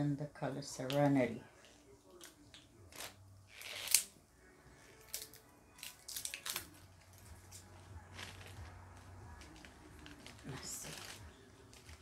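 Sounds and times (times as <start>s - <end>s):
packaging rustling: 5.0s - 12.0s.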